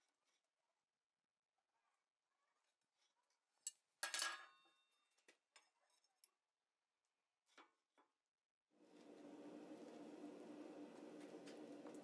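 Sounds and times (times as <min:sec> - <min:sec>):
metal tools clinking on anvil: 0:04.0 - 0:04.7.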